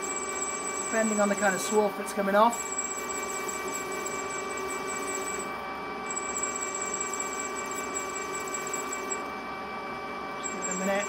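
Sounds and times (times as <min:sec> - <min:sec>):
metal lathe whining: 0:00.0 - 0:11.0.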